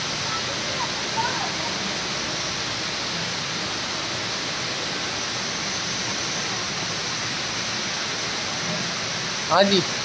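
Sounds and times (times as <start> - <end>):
indoor waterfall rushing: 0.0 - 10.0.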